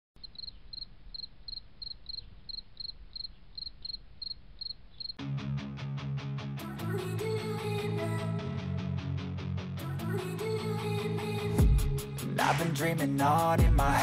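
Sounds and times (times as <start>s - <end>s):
high cricket-like chirping: 0.2s - 5.2s
music with guitar and bass: 5.2s - 14.0s.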